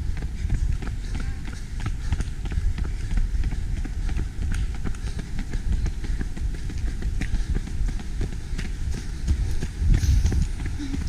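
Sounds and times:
running footsteps on asphalt: 0:00.0 - 0:11.0
low rumble: 0:05.9 - 0:11.0.

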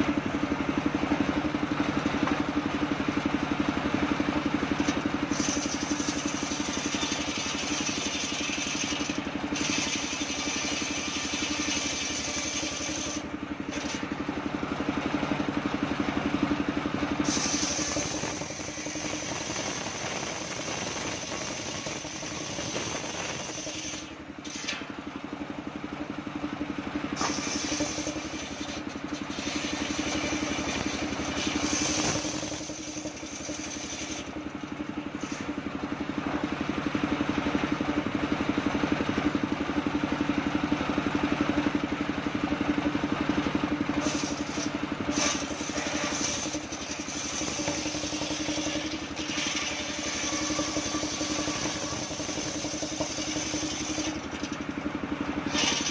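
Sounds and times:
circular saw ripping wood: 0:04.8 - 0:14.3, 0:17.2 - 0:25.0, 0:27.1 - 0:35.7, 0:44.0 - 0:55.9.

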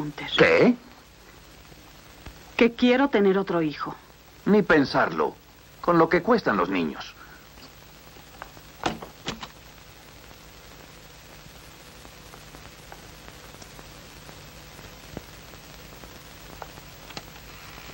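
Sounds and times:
film soundtrack hiss: 0:00.0 - 0:17.9.

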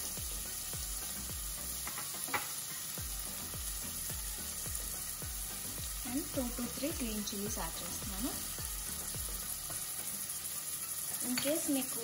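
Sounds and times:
onion sizzling in hot oil: 0:00.0 - 0:12.0.

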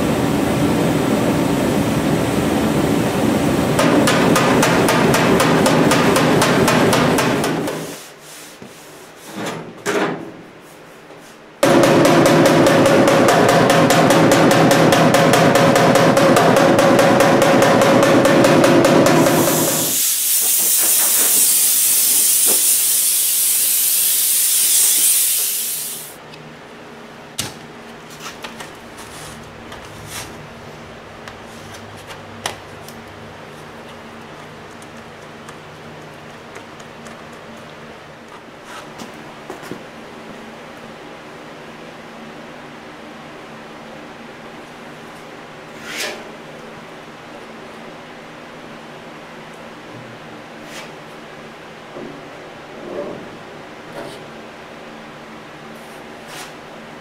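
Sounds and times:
loud hiss: 0:19.0 - 0:26.2.

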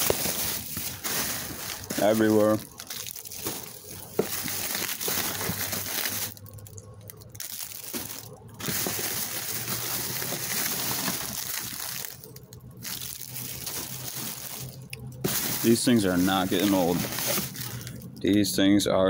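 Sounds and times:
plastic bags rustling: 0:00.0 - 0:18.4.

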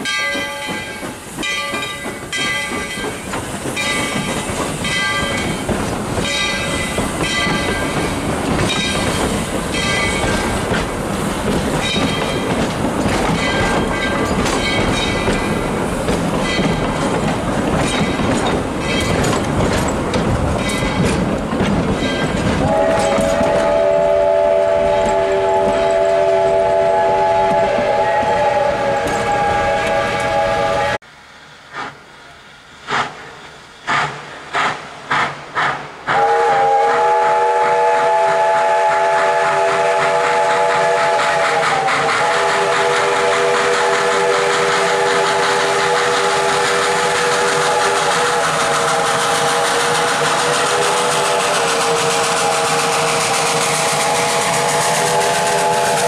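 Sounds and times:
steam locomotive chime whistle: 0:00.0 - 0:10.6, 0:22.0 - 0:31.0, 0:36.1 - 0:56.0
hiss of steam and exhaust: 0:00.0 - 0:21.6, 0:22.3 - 0:56.0.

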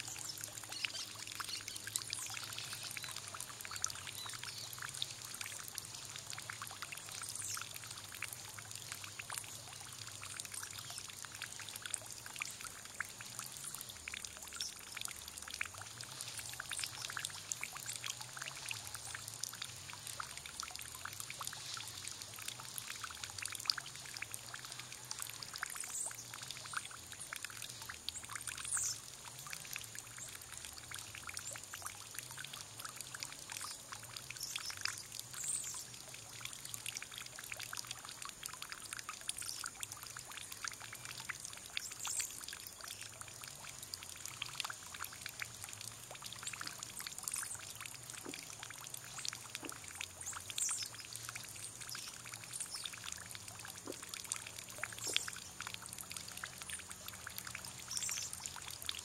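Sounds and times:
water pouring into a basin: 0:00.0 - 0:59.0
water splashing and trickling: 0:00.0 - 0:59.0.

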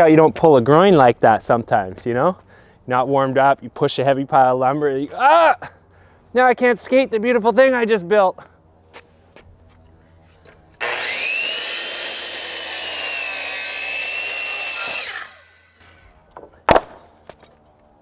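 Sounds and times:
circular saw cutting wood: 0:10.8 - 0:16.5.

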